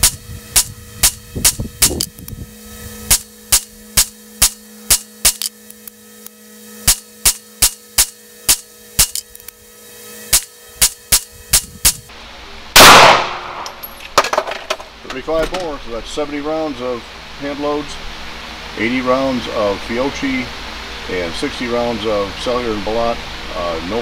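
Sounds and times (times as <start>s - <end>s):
fan humming: 0.0s - 24.0s
pistol shots: 12.8s - 13.6s.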